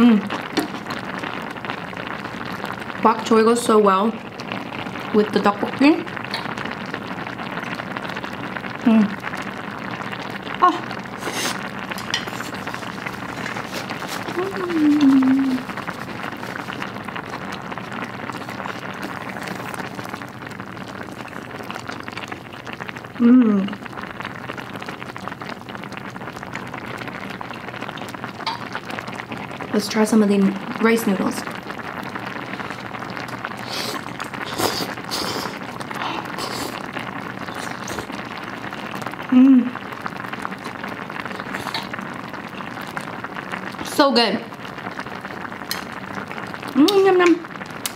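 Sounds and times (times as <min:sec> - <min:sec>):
pot of soup bubbling: 0:00.0 - 0:47.9
slurping noodles: 0:11.1 - 0:20.3, 0:33.5 - 0:38.4, 0:40.5 - 0:42.6
person humming: 0:14.3 - 0:15.7, 0:23.2 - 0:23.8, 0:39.3 - 0:39.8
chewing: 0:40.6 - 0:42.0.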